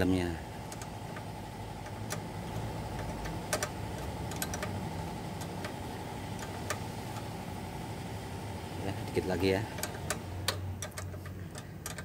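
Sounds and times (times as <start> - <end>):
low steady hum: 0.0 - 12.0
wrench metallic ticks: 0.7 - 4.8, 9.1 - 12.0.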